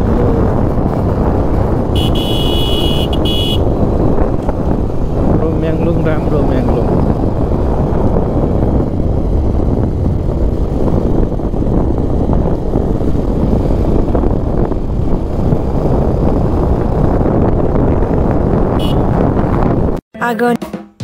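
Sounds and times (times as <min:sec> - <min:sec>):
motorcycle engine: 0:00.0 - 0:20.0
road noise: 0:00.0 - 0:20.0
wind buffeting microphone: 0:00.0 - 0:20.0.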